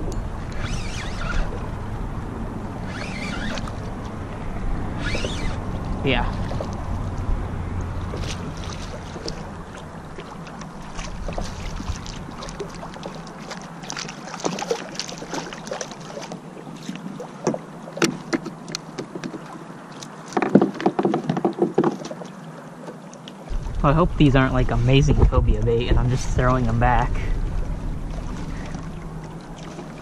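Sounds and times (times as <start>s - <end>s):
wind rumble on microphone: 0.0s - 10.2s, 23.5s - 30.0s.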